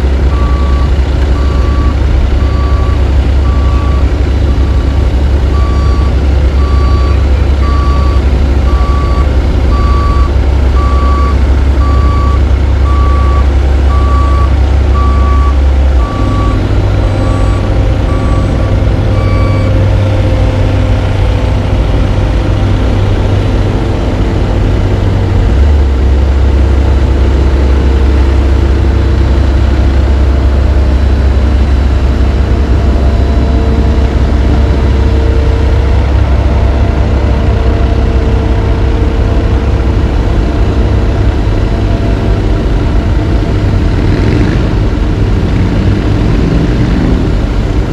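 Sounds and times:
diesel engine drone: 0.0 - 47.9
reversing alarm beeping: 0.3 - 19.9.

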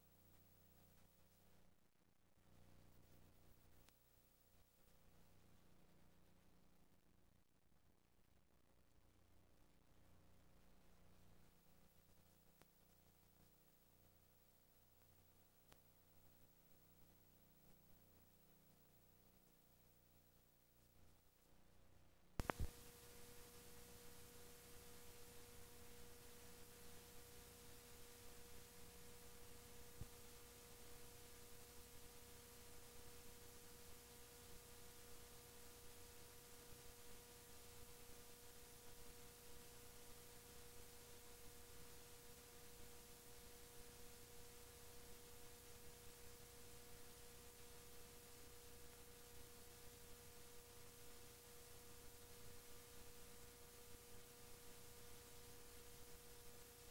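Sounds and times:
faint electrical hum and hiss: 0.0 - 56.9
faint click: 3.7 - 4.0, 12.5 - 12.8, 15.0 - 15.9, 22.4 - 22.9.

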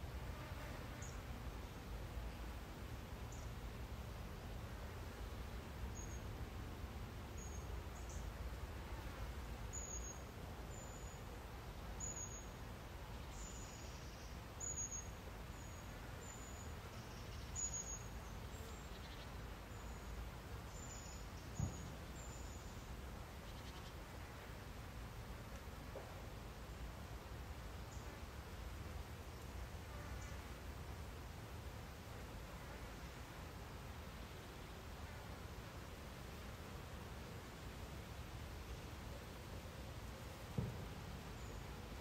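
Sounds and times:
low thump: 40.6 - 40.9.

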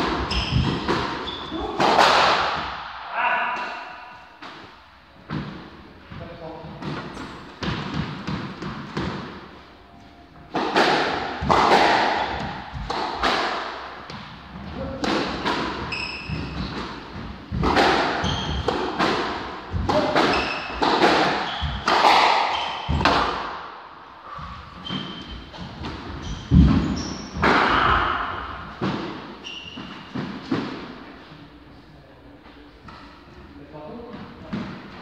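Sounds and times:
shoes squeaking on wooden floor: 0.0 - 1.8, 13.9 - 23.1, 24.4 - 30.6
squash ball hitting rackets and walls: 0.0 - 9.6, 10.4 - 31.0, 34.0 - 35.0.

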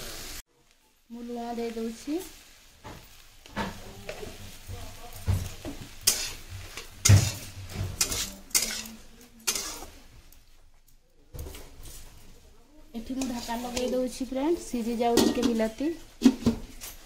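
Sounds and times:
vegetables frying: 0.0 - 17.0
spoon scraping a metal pan: 6.0 - 10.0.

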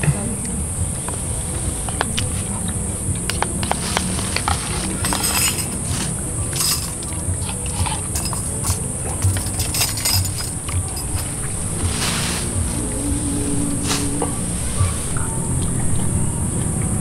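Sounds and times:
high-pitched insect drone: 0.0 - 17.0
metal ladle clinking in pot: 4.4 - 11.3.

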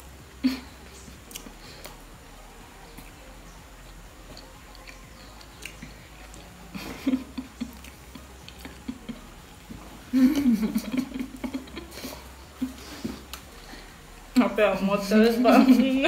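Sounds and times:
closed-mouth mm sounds: 0.4 - 2.1
person chewing with wet clicks: 1.2 - 2.1, 2.9 - 6.7, 7.6 - 9.9.

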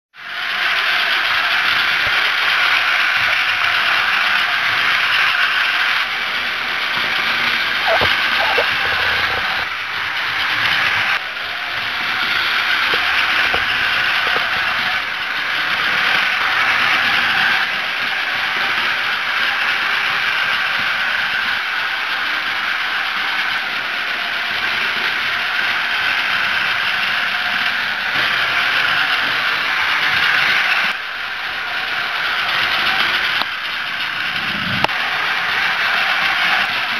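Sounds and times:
toy train motor whirring rattle: 0.2 - 36.9.

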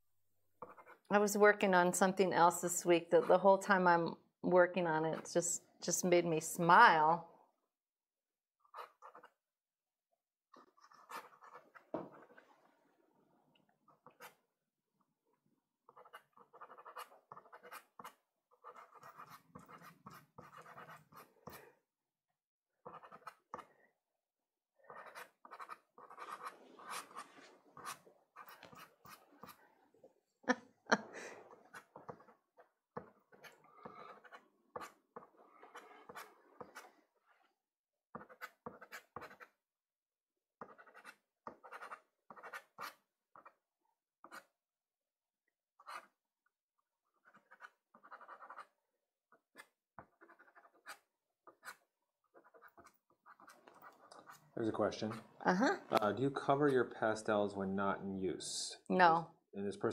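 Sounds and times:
pastel stick scraping paper: 0.6 - 1.1, 8.6 - 9.4, 10.6 - 12.7, 13.9 - 14.4, 15.8 - 21.8, 22.8 - 23.7, 24.8 - 29.6, 31.4 - 37.6, 38.2 - 39.6, 40.6 - 43.6, 44.2 - 44.6, 45.8 - 46.2, 47.1 - 56.1.

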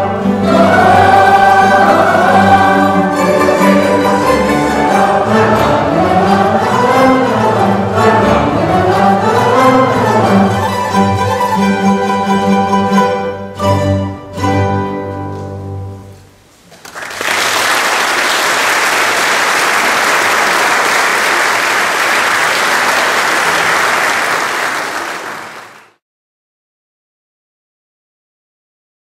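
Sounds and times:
audience applause: 16.7 - 26.0.

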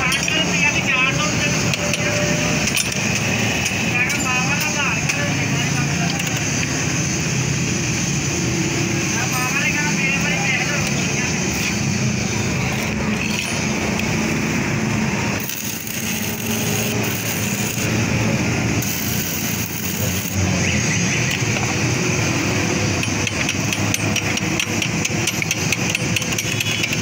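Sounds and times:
welding arc crackling: 1.5 - 27.0
sharp taps and clicks: 23.0 - 27.0.

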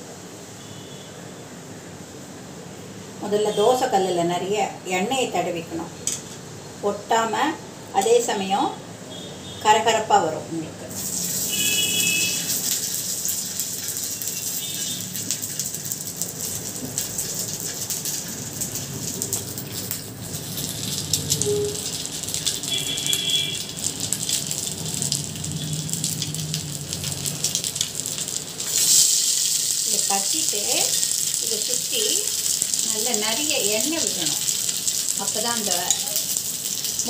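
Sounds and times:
patties sizzling on a griddle: 10.9 - 37.0.

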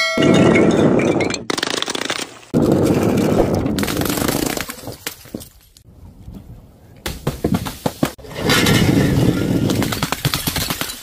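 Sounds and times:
glass bottles rolling and breaking: 0.0 - 1.9, 8.2 - 11.0.

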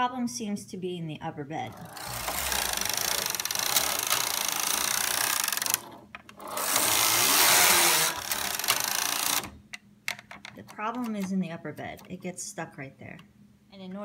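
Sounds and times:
knitting machine carriage clattering: 1.7 - 9.5.

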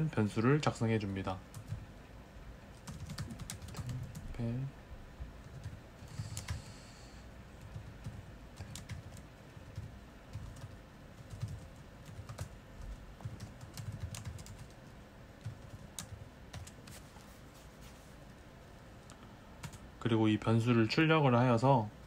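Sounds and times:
keyboard typing clicks: 7.6 - 12.6, 13.2 - 14.8.

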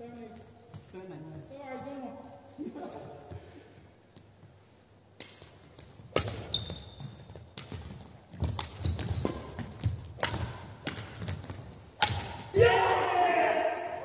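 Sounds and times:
footsteps on court floor: 0.0 - 10.2
rackets striking shuttlecock: 5.2 - 12.6.

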